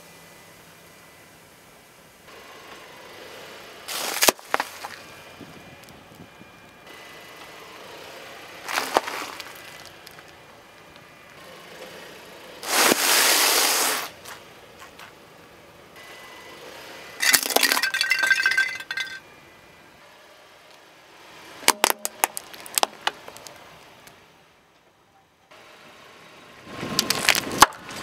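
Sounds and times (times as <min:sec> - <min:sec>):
bag of flakes crunching: 0:03.9 - 0:05.0, 0:08.7 - 0:10.3, 0:12.6 - 0:14.1
car tyre crushing objects: 0:03.9 - 0:05.1, 0:08.6 - 0:10.4, 0:17.2 - 0:19.2, 0:21.6 - 0:23.6, 0:27.0 - 0:28.0
sharp plastic cracks: 0:04.0 - 0:04.7, 0:21.7 - 0:23.6.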